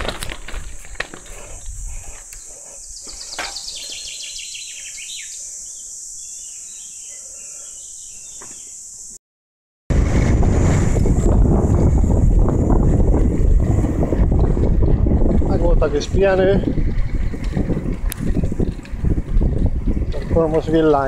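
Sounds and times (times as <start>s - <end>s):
wind rushing on microphone: 0.0s - 3.8s, 9.9s - 21.0s
cicadas chorus: 0.0s - 9.2s
songbird singing: 0.6s - 9.2s.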